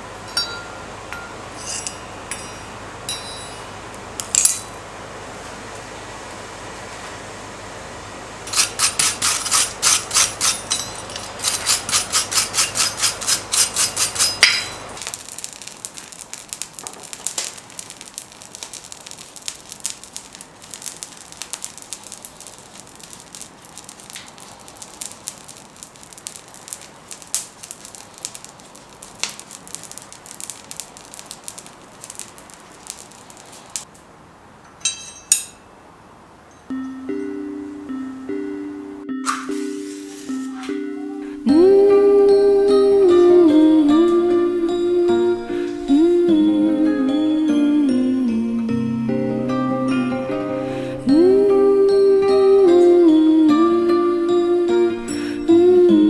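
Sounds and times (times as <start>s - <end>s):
forge fire crackling and popping: 8.4s - 34.1s.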